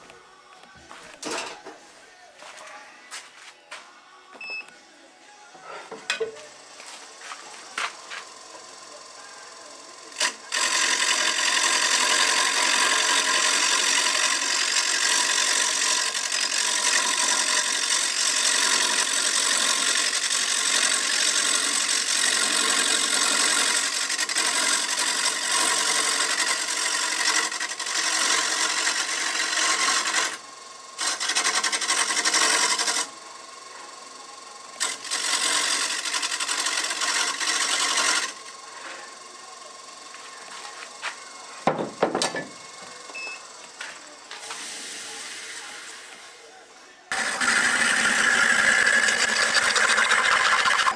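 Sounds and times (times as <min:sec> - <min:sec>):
wood lathe running: 0:06.6 - 0:46.4, 0:47.1 - 0:50.9
chisel rasping on spinning wood: 0:10.2 - 0:30.4, 0:31.0 - 0:33.2, 0:34.8 - 0:38.4, 0:47.1 - 0:50.9.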